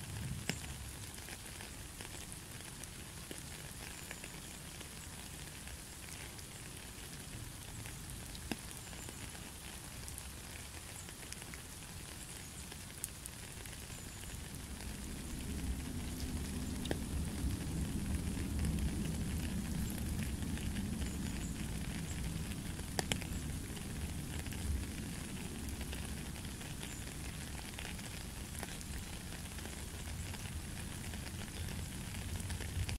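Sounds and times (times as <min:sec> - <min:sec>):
rain on puddle and gravel: 0:00.0 - 0:32.9
sharp drip ticks: 0:00.2 - 0:32.9.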